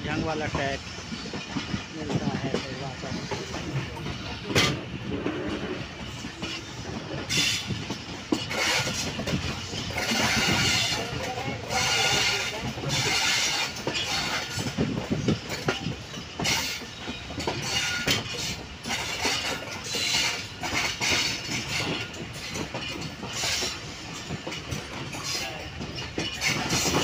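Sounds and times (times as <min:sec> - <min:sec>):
train wheels rumbling on rails: 0:00.0 - 0:27.0.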